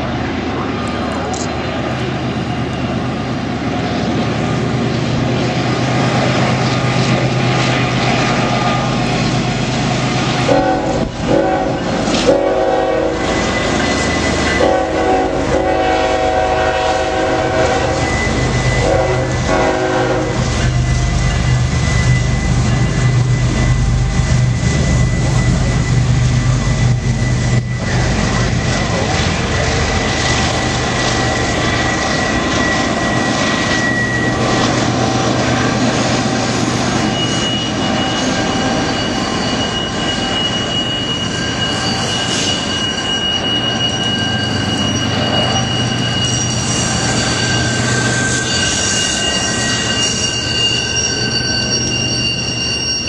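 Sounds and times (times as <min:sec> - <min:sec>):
locomotive engine drone: 0:00.0 - 0:53.0
multi-chime air horn blasts: 0:10.5 - 0:20.8.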